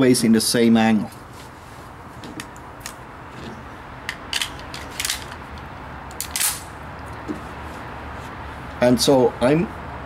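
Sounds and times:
pistol metallic clicks and scrapes: 2.4 - 6.8.

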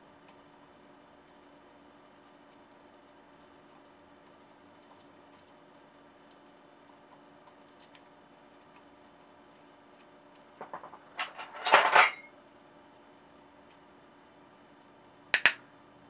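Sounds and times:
faint room hum: 0.0 - 16.0
metal tools clicking and clattering: 10.6 - 12.3.

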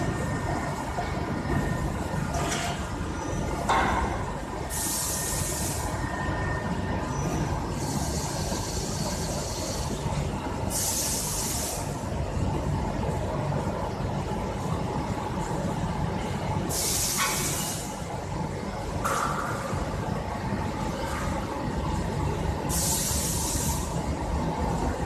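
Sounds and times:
short air hisses: 4.7 - 5.8, 10.7 - 11.9, 16.7 - 17.9, 22.7 - 23.9.

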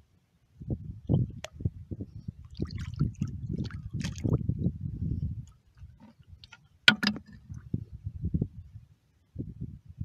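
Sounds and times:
shallow seawater sloshing: 2.5 - 4.4.

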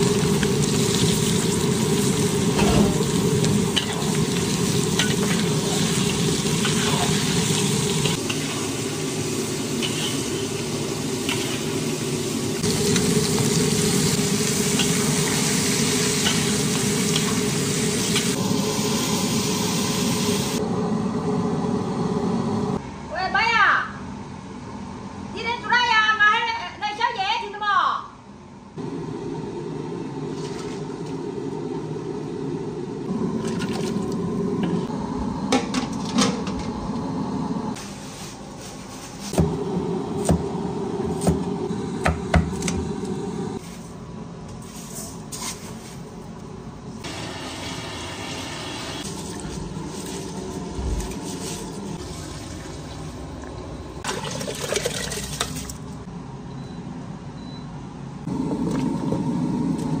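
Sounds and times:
metal pots and utensils clinking: 9.8 - 10.6
water pouring and splashing: 33.4 - 34.2, 47.1 - 56.0.

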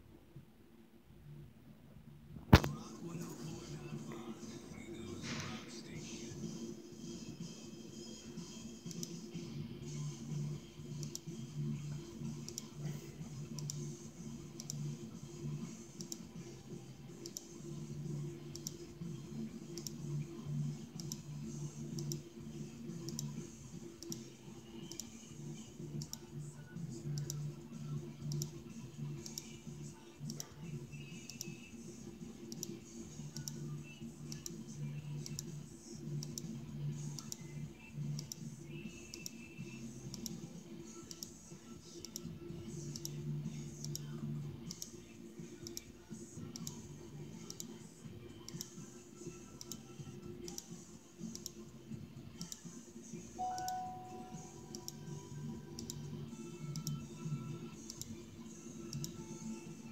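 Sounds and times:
faint regular clicking: 8.9 - 9.2, 11.0 - 11.3, 17.2 - 17.5, 24.8 - 25.1, 41.0 - 41.4, 44.7 - 45.0, 45.6 - 45.9, 46.5 - 46.8, 49.6 - 51.6, 52.4 - 52.7, 58.9 - 59.2
low steady hum: 53.4 - 58.2.

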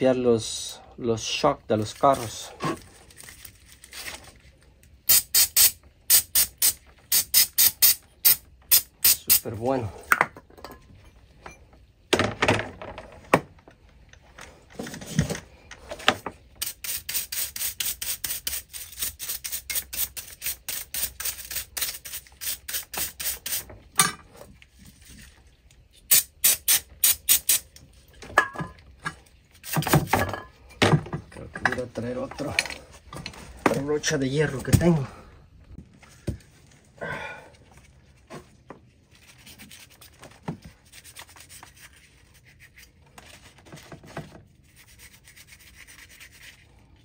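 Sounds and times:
rough scraping noises: 1.2 - 3.3
brush scrubbing metal parts: 16.6 - 23.7, 44.6 - 46.9.

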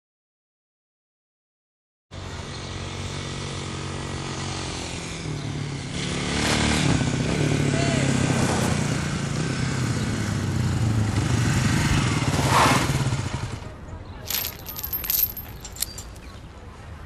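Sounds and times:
engine humming: 8.8 - 16.4.

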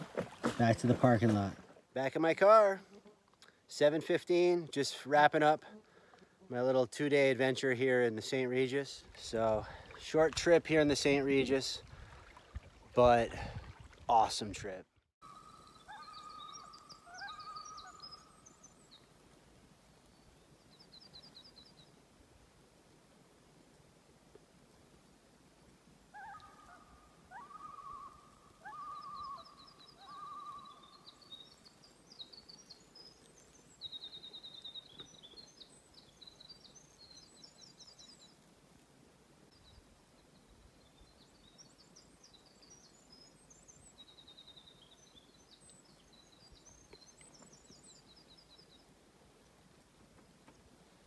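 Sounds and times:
pulsed wavering bird calls: 15.2 - 18.6, 26.1 - 31.2
songbird trilling: 15.3 - 19.0, 26.2 - 33.2.

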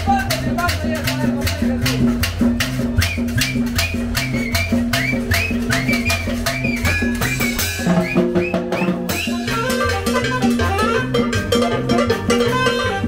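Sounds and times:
upright bass line: 0.0 - 13.0
saxophone phrases: 9.1 - 11.3, 12.4 - 13.0.

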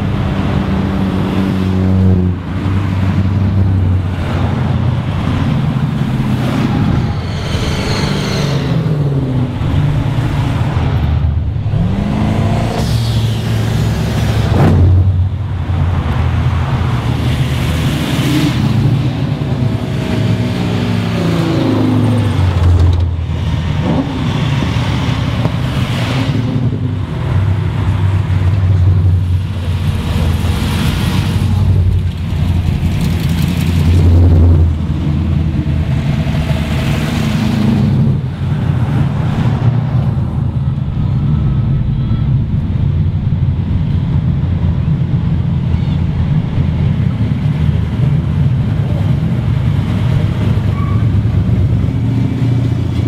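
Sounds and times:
engine revving: 0.0 - 28.0
cars driving past rumbling: 0.0 - 53.0.

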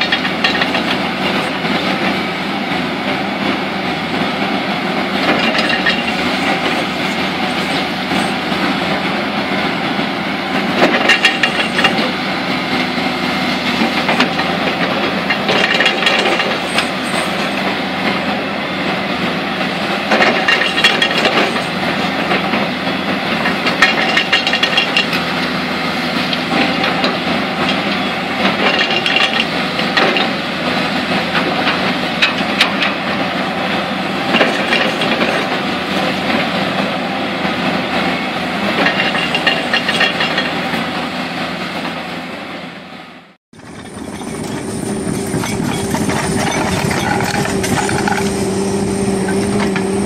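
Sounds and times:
diesel engine under load: 0.0 - 50.0
metal clanks: 10.8 - 12.2, 23.4 - 25.2, 38.8 - 40.6, 43.6 - 48.5.

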